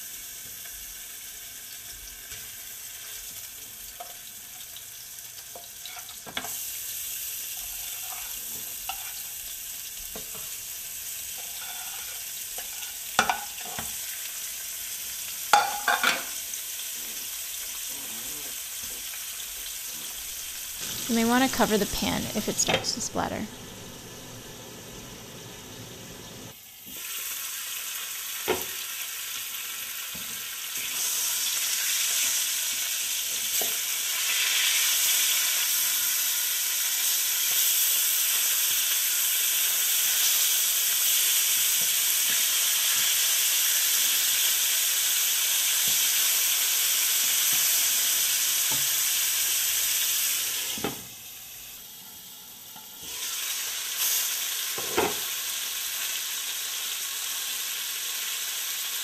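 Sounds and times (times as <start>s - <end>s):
fish sizzling in oil: 0.0s - 59.0s
spatula knocking pan: 12.6s - 13.9s, 15.5s - 16.3s.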